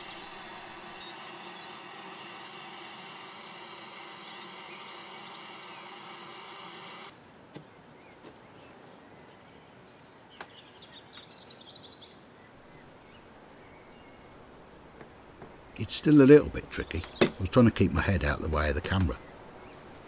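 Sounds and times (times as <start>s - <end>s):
blowtorch flame hissing: 0.0s - 7.1s.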